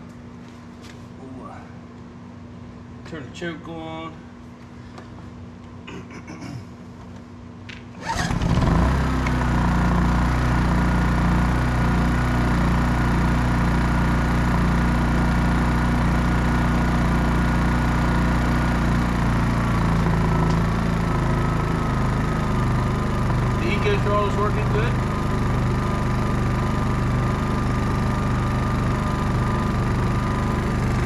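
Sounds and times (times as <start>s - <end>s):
generator engine starting and running: 7.8s - 31.0s.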